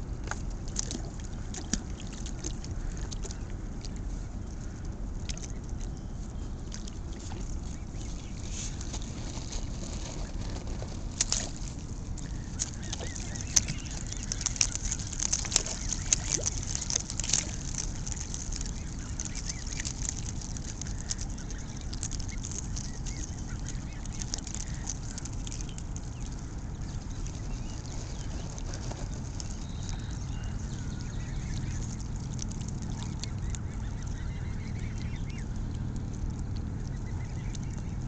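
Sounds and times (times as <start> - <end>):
low rumble: 0.0 - 38.0
water splashes: 0.0 - 38.0
geese honking: 12.1 - 25.8.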